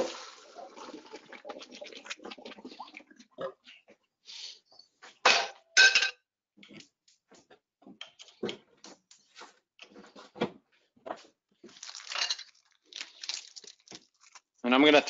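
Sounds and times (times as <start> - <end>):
plastic packaging rustling: 11.7 - 14.6.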